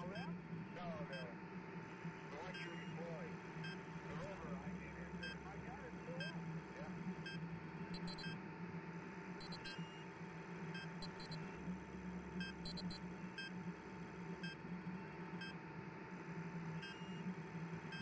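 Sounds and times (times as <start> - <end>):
high-pitched electronic beeps: 8.0 - 8.2, 9.4 - 9.8, 11.0 - 11.4, 12.7 - 13.0
low electronic hum: 8.0 - 8.2, 9.4 - 9.8, 11.0 - 15.2.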